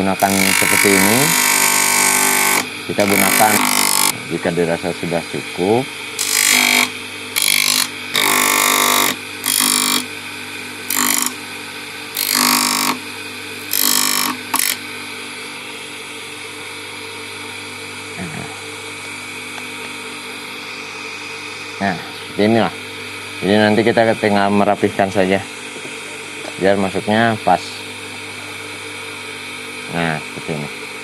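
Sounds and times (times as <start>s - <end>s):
wood grinding on sanding disc: 0.0s - 4.1s, 6.2s - 10.1s, 10.9s - 11.4s, 12.2s - 13.0s, 13.6s - 14.8s
electric motor humming: 0.0s - 26.6s.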